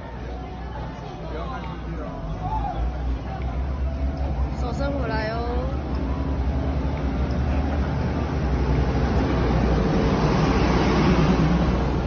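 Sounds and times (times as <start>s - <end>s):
diesel train engine hum: 0.0s - 12.0s
train rumble: 3.0s - 12.0s.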